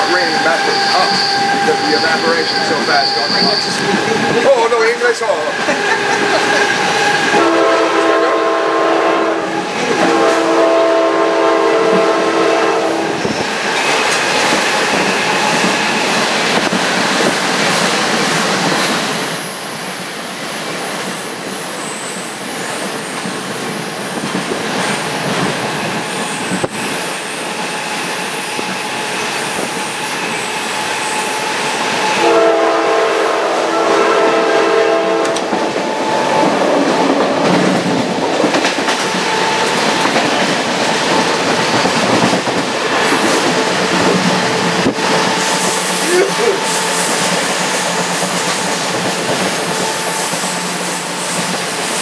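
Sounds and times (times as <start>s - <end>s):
moving train rumble: 0.0s - 52.0s
train horn chord: 5.8s - 13.1s, 32.2s - 35.5s.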